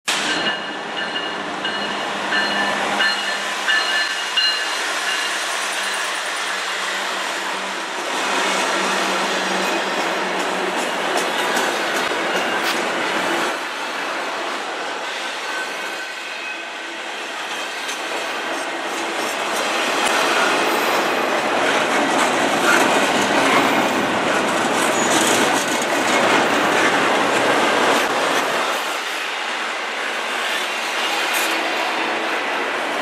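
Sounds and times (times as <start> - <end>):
freight train wheels clattering: 8.1 - 13.7, 17.1 - 32.9.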